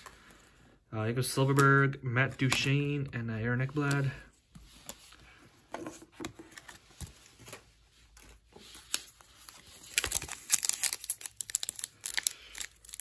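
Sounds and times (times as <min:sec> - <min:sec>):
wrapper tearing and crinkling: 0:08.8 - 0:13.0.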